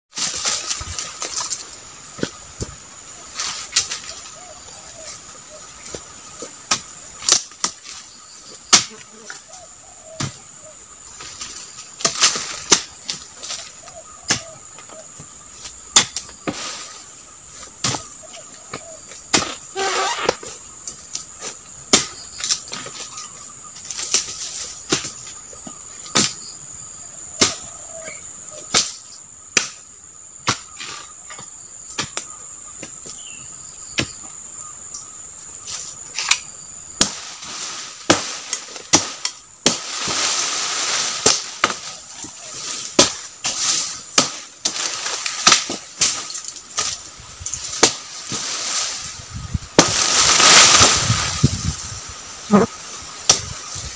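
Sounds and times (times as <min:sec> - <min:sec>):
insect drone: 0:00.1 - 0:53.9
blade chopping wood: 0:49.8 - 0:51.0.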